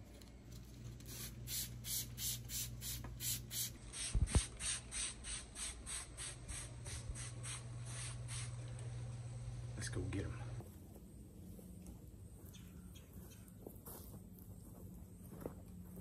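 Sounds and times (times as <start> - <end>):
spray bottle hissing sprays: 1.0 - 8.6.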